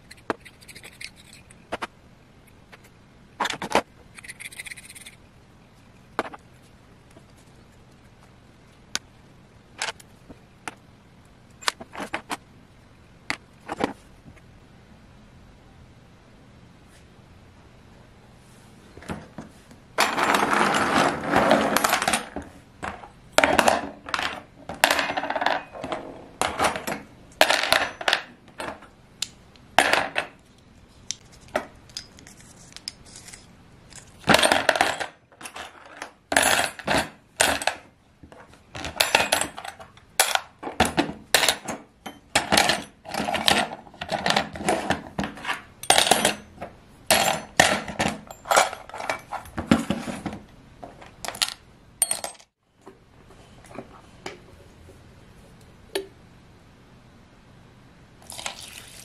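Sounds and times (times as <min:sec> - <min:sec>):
metal parts clattering into plastic tub: 0:20.0 - 0:28.8, 0:34.2 - 0:37.8, 0:38.8 - 0:52.5.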